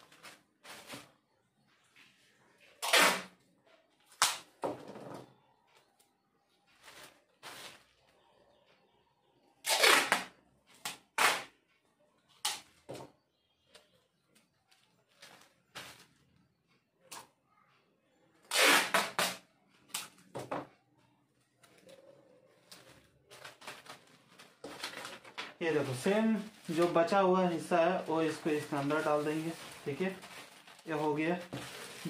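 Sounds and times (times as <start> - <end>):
plastic bags and paper rustling: 0.0 - 4.5, 6.6 - 8.4, 13.7 - 16.5, 21.4 - 32.0.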